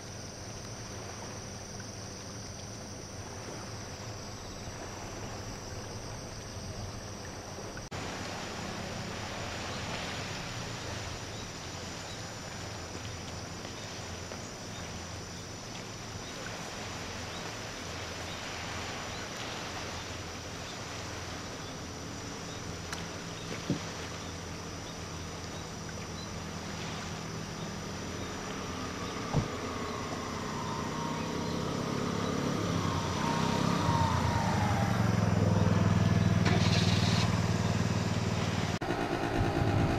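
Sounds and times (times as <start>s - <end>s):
distant motor engine hum: 0.0s - 39.9s
steady outdoor hiss: 0.0s - 39.9s
engine whine dropping in pitch: 28.1s - 39.9s.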